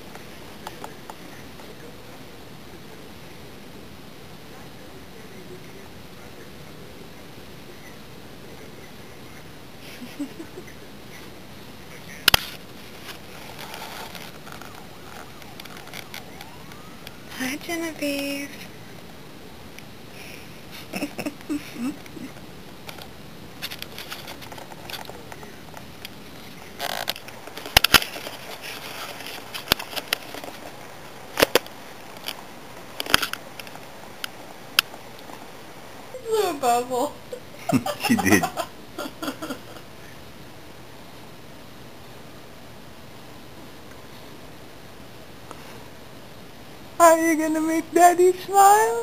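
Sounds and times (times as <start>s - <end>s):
faint steady hiss: 0.0s - 49.0s
faint rustles: 4.4s - 17.6s, 19.8s - 36.2s.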